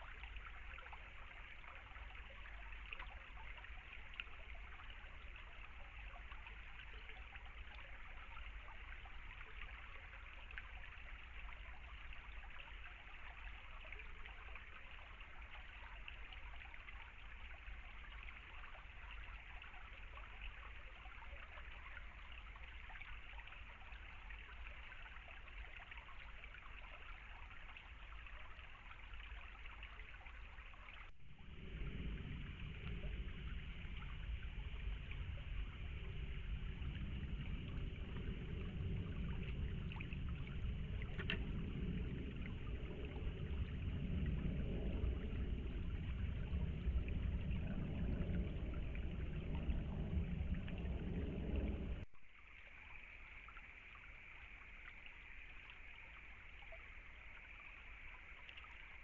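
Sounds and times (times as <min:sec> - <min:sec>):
stream trickling over stones: 0:00.0 - 0:59.0
deep rush of water: 0:31.1 - 0:52.1.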